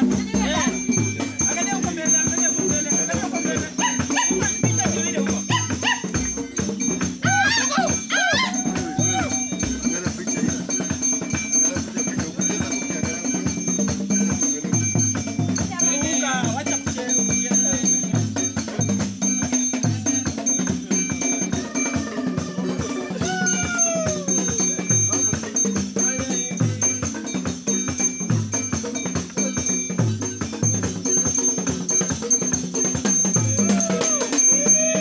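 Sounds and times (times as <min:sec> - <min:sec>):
drumming with rattles: 0:00.0 - 0:35.0
voice crying out: 0:07.2 - 0:09.6, 0:21.6 - 0:24.5, 0:33.6 - 0:35.0.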